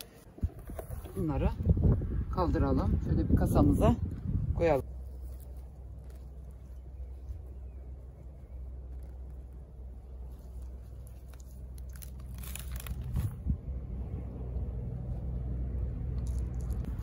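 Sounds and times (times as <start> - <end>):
low steady rumble: 0.0 - 17.0
roots tearing from soil: 4.8 - 13.6, 16.0 - 17.0.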